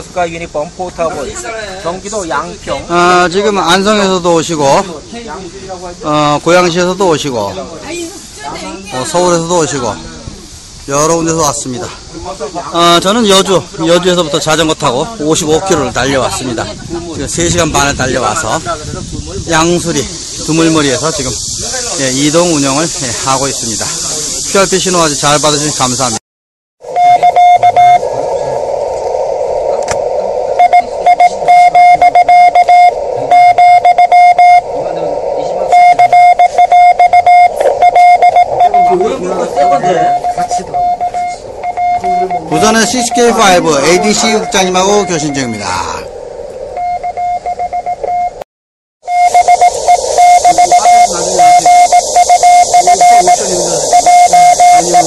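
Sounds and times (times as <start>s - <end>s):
radio receiver hiss: 12.6s - 26.2s, 26.8s - 46.9s, 49.1s - 55.0s
morse code beeps: 26.9s - 28.1s, 30.6s - 34.7s, 35.7s - 45.8s, 46.8s - 48.4s, 49.1s - 55.0s.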